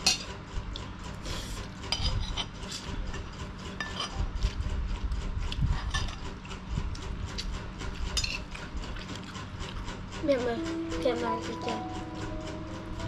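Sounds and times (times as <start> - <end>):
metal spoon scraping china plate: 3.8 - 4.2.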